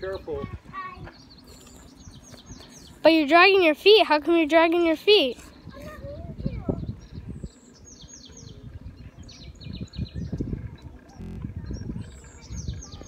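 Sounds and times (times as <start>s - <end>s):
low rumble: 11.2s - 11.6s.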